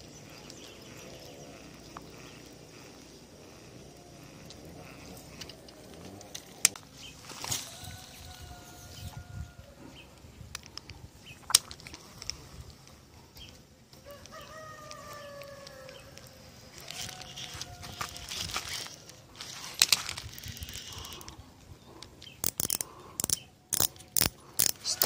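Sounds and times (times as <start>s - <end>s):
fishing reel clicking and rattling: 1.5s - 6.8s, 16.8s - 21.4s, 22.2s - 25.0s
rooster crowing: 7.5s - 9.9s, 14.0s - 18.6s.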